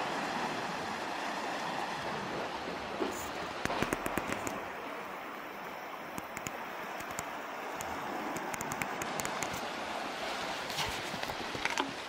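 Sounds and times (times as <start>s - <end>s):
rushing water: 0.0s - 12.0s
faint clicks: 6.1s - 9.6s.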